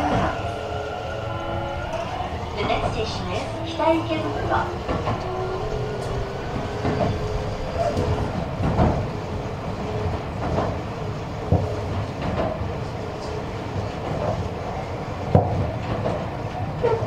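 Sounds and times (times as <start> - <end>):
rail joint clack: 0.0 - 17.0
train wheels rumbling on track: 0.0 - 17.0.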